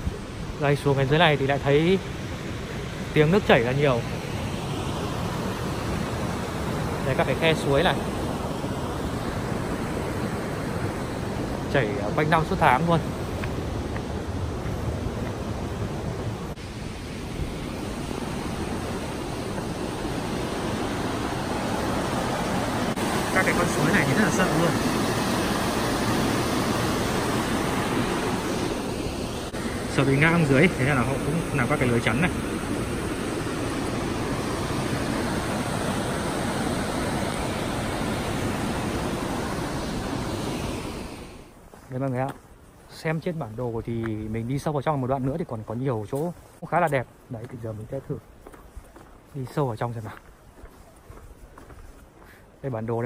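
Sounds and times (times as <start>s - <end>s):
stream rushing over rocks: 2.7s - 42.1s.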